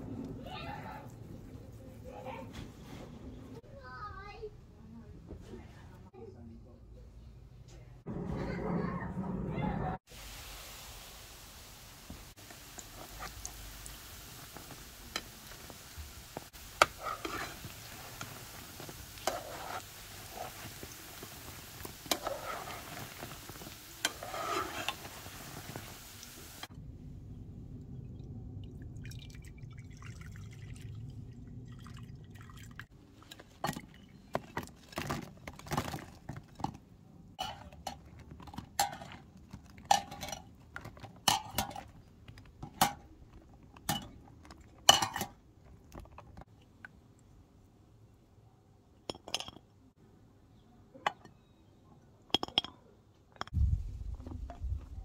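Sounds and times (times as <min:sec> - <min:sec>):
dough sizzling in hot oil: 0:10.1 - 0:26.7
wire skimmer scraping ceramic bowl: 0:16.6 - 0:26.0, 0:37.4 - 0:43.1.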